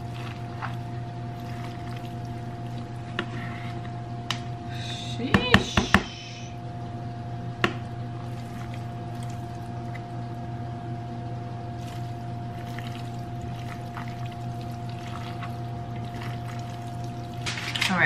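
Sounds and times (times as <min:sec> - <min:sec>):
wet squishing and scraping: 0:00.0 - 0:04.0, 0:07.8 - 0:10.2, 0:11.7 - 0:18.0
electrical hum: 0:00.0 - 0:18.0.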